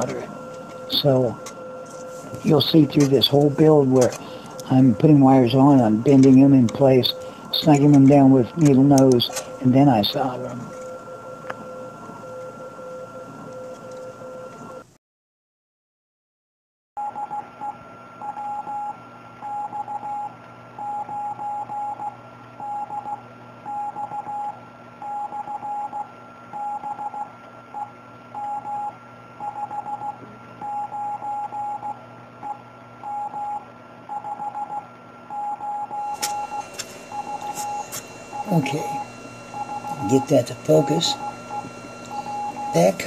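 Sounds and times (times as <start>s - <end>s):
radio hiss: 0.0s - 10.8s, 36.1s - 43.0s
morse code beeps: 0.0s - 14.8s, 17.0s - 43.0s.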